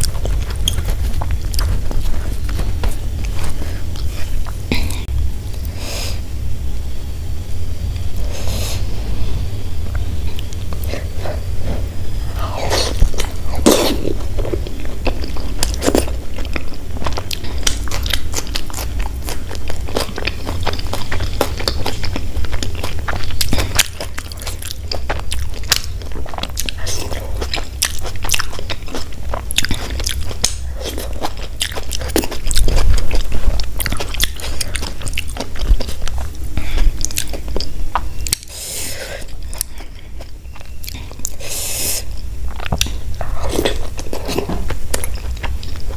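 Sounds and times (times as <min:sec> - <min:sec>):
chewing and biting flatbread: 0:00.0 - 0:04.9, 0:12.3 - 0:38.6, 0:42.2 - 0:45.9
steady low hum: 0:00.0 - 0:45.9.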